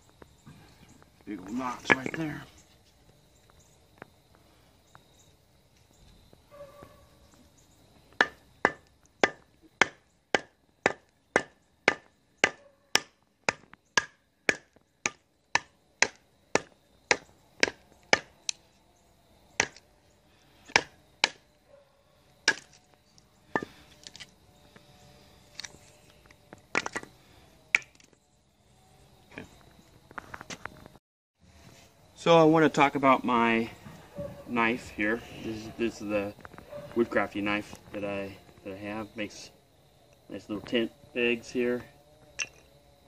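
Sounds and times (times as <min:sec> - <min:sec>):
knife splitting wood knocks: 0:08.2 - 0:18.3, 0:19.6 - 0:19.8, 0:20.7 - 0:21.4, 0:22.5 - 0:22.8.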